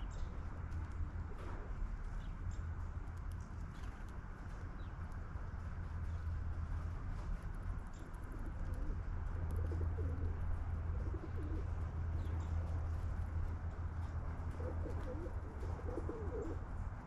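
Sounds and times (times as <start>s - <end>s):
steady low hum: 0.0s - 17.0s
pigeons cooing: 8.3s - 12.4s, 14.5s - 16.7s.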